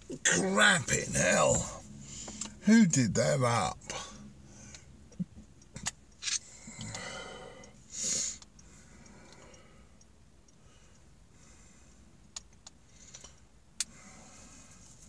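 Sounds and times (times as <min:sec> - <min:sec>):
man breathing out hard: 0:06.4 - 0:10.0.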